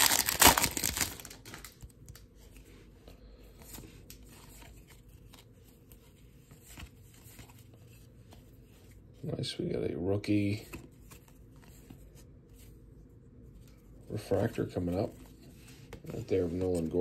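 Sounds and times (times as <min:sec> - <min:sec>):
plastic wrapper crinkling: 0:00.0 - 0:02.2.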